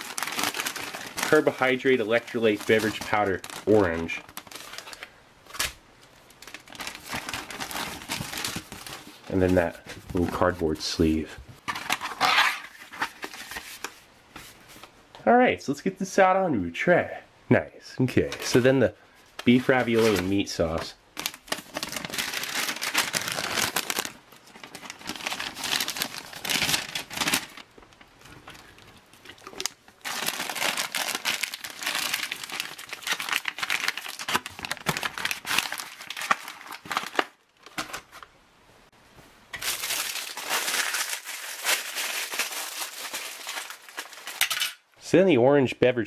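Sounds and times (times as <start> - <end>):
plastic bag crinkling: 0.0 - 10.8, 19.4 - 38.3, 39.6 - 44.7.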